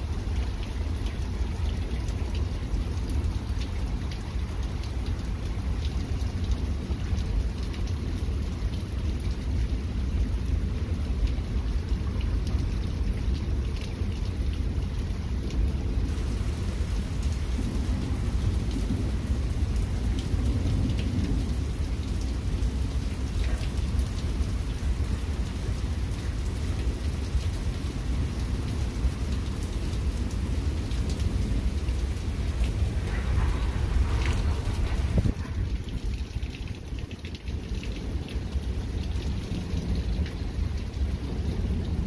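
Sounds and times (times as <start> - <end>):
heavy rain: 0.0 - 42.0
rolling thunder: 31.2 - 36.4.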